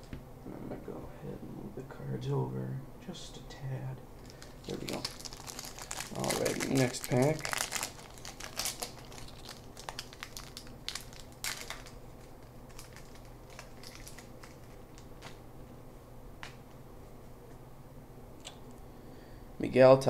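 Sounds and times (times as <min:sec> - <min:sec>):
card pack wrapper crinkling: 0:04.2 - 0:15.4.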